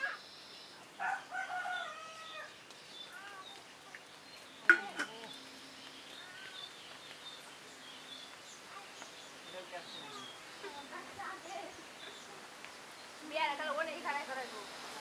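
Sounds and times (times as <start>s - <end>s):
faint bird chirps: 0.0s - 13.2s
rooster crowing: 1.0s - 2.5s.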